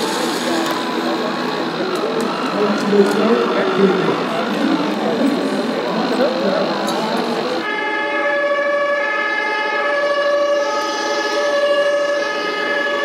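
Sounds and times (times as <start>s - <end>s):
toy fire engine siren: 7.6s - 13.0s.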